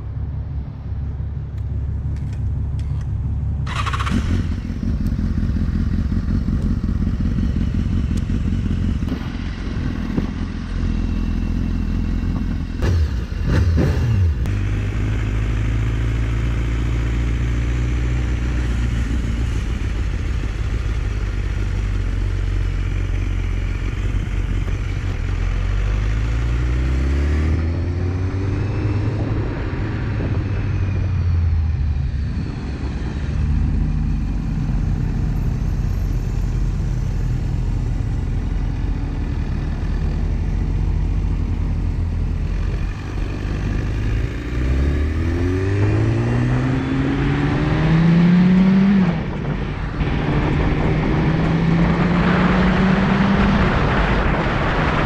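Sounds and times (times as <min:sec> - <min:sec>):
motorcycle engine running: 0:00.4 - 0:26.3.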